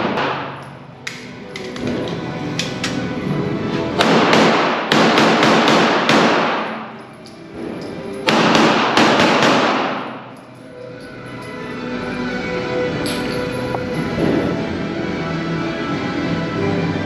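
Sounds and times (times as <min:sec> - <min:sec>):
gunshots echoing indoors: 0:00.0 - 0:02.0, 0:03.9 - 0:10.6.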